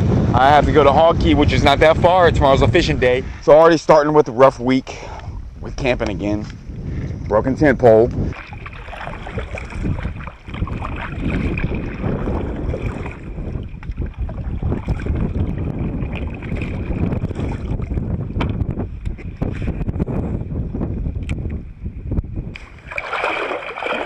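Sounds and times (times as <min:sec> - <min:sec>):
wind buffeting microphone: 0:00.0 - 0:24.0
water lapping against kayak hull: 0:07.8 - 0:20.0, 0:22.5 - 0:24.0.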